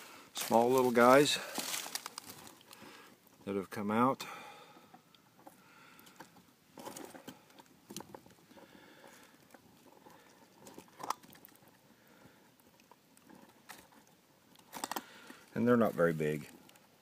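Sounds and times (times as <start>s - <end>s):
dry leaves crackling underfoot: 0.3s - 2.9s
twig snapping: 1.6s - 2.8s.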